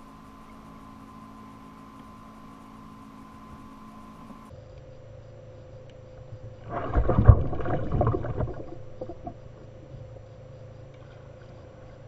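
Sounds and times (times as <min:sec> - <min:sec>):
water slapping plastic hull: 0:06.6 - 0:09.6.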